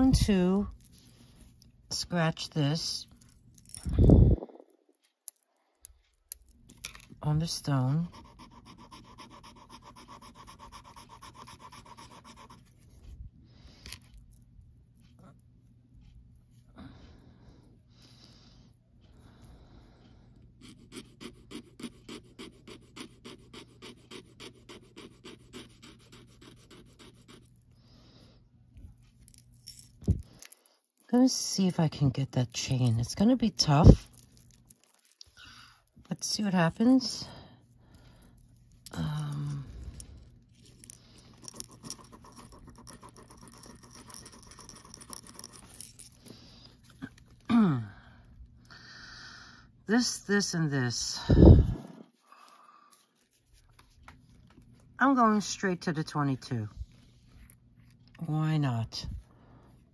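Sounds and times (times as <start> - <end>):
metal chain scratching on stone: 40.7 - 46.2.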